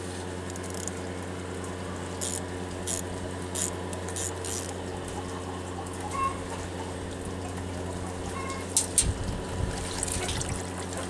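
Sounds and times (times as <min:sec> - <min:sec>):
electric fuel pump humming: 0:00.0 - 0:11.0.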